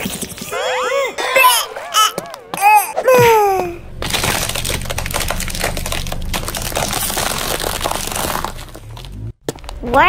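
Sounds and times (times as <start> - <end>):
tyre crushing brittle objects: 3.9 - 9.8.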